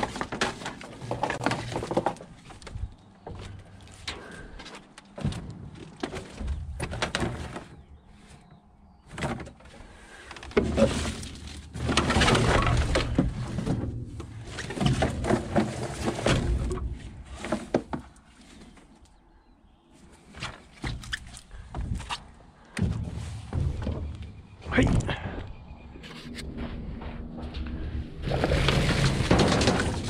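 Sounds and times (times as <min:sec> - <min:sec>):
scrap items clattering and scraping: 0:00.0 - 0:19.0, 0:28.1 - 0:30.0.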